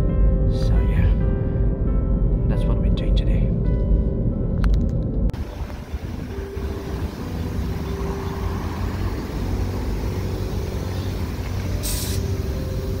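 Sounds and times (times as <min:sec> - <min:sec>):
low mechanical rumble: 0:00.0 - 0:13.0
air hissing from tyre valve: 0:05.7 - 0:13.0.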